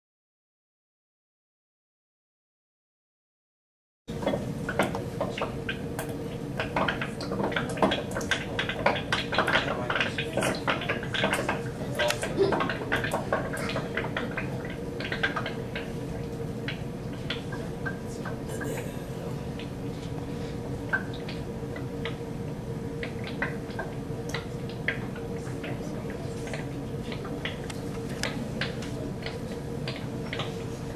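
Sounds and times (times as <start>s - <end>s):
gas bubbles popping underwater: 4.1s - 30.9s
steady hum: 4.1s - 30.9s.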